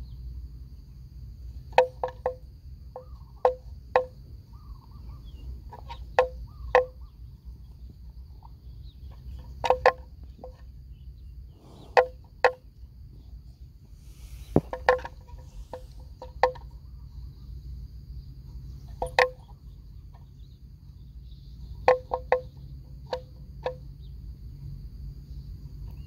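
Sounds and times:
faint high whine: 0:12.9 - 0:19.0.

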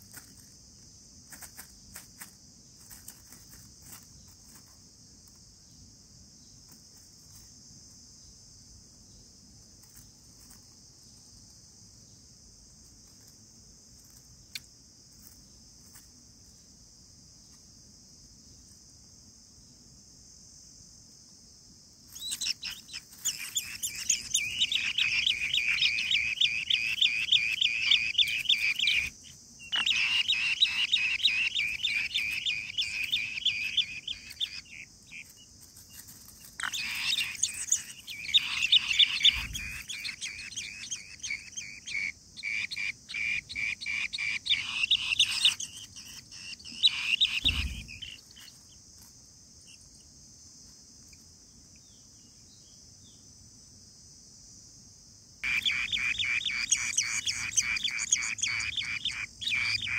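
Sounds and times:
insects droning: 0:00.0 - 0:59.9
nestlings begging with high chirps: 0:22.1 - 0:48.8, 0:55.4 - 0:59.9.

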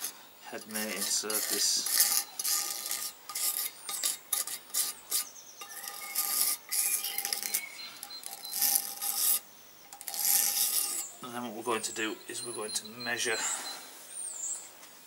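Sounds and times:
hand scraper scraping metal: 0:00.0 - 0:11.2
scraper squeak: 0:00.7 - 0:11.2.

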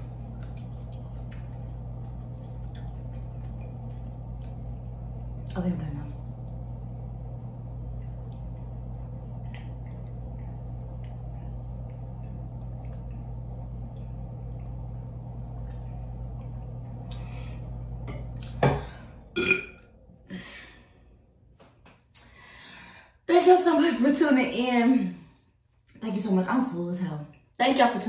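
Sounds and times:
steady low hum: 0:00.0 - 0:26.5
person drinking and swallowing: 0:18.1 - 0:19.8
loud burp: 0:19.3 - 0:19.9.

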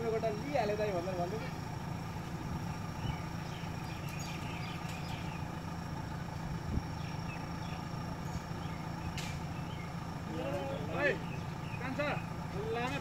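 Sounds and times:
diesel engine rumbling: 0:00.0 - 0:13.0.

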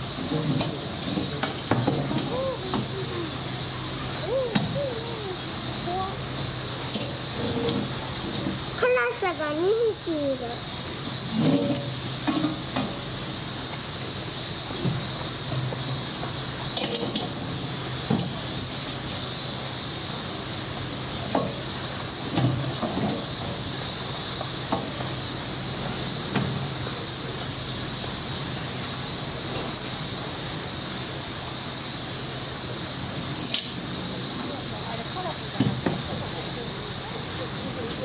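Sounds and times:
steady high hiss: 0:00.0 - 0:38.0
chain rattling: 0:06.8 - 0:07.6, 0:15.8 - 0:17.3.

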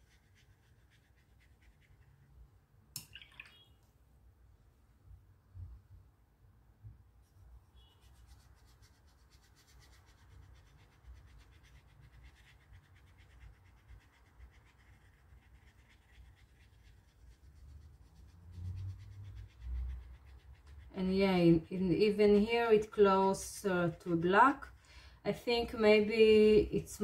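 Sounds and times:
paintbrush scratching on paper: 0:00.0 - 0:02.4, 0:07.2 - 0:24.8.

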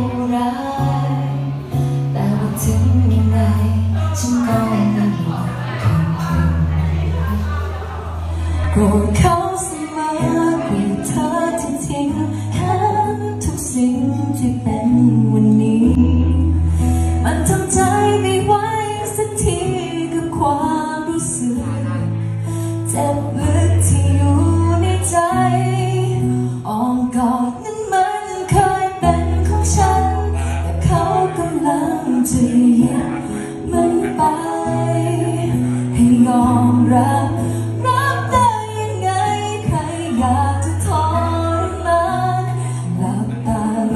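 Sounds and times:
woman singing into microphone: 0:00.0 - 0:07.4, 0:08.3 - 0:43.9
sustained bass notes: 0:00.0 - 0:09.1, 0:14.5 - 0:18.2.

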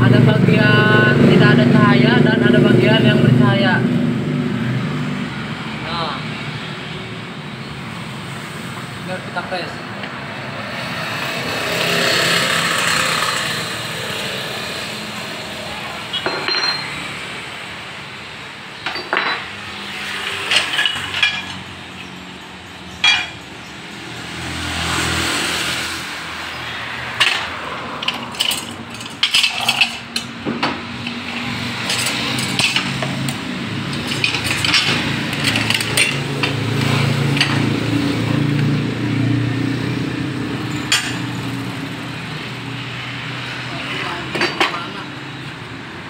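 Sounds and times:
passing traffic rushing: 0:00.0 - 0:46.0
metal tools clinking: 0:16.2 - 0:17.1, 0:18.8 - 0:23.7, 0:27.2 - 0:37.8.

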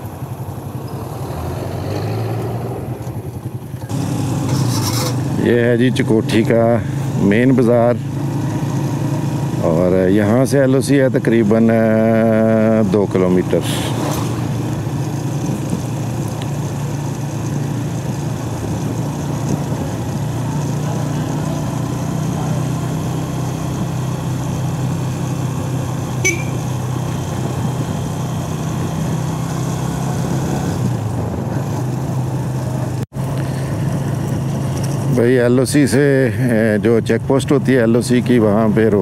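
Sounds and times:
motorcycle engine running: 0:00.0 - 0:36.7
road and wind noise: 0:00.0 - 0:39.0
brief high chirp: 0:26.2 - 0:26.8.

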